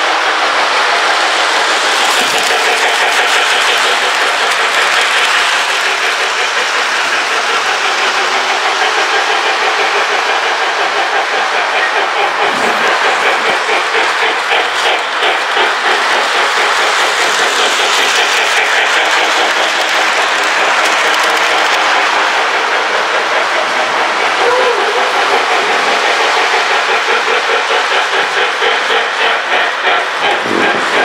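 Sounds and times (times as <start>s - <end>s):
toy train rumbling: 0.0s - 31.0s
wheels clicking over rails: 0.0s - 31.0s.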